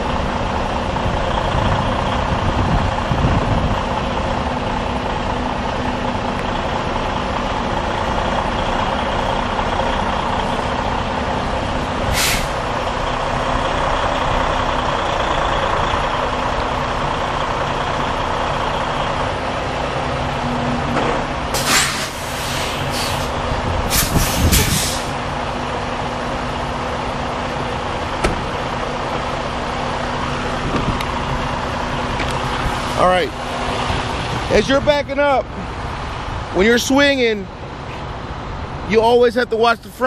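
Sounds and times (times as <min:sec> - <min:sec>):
diesel engine running: 0:00.0 - 0:40.0
air brake hisses: 0:12.1 - 0:12.6, 0:21.5 - 0:25.2.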